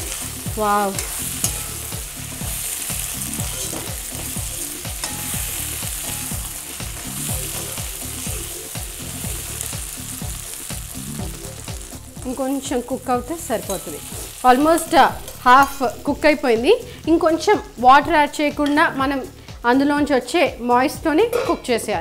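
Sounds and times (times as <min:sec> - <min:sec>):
potatoes sizzling in oil: 0:00.0 - 0:19.7
ladle scraping pan: 0:03.3 - 0:04.4.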